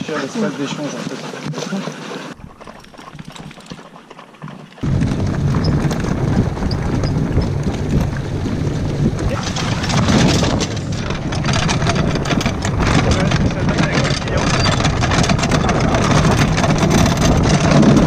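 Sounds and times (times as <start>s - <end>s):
cart rumbling and rattling: 0.0s - 18.0s
wind buffeting microphone: 4.8s - 18.0s.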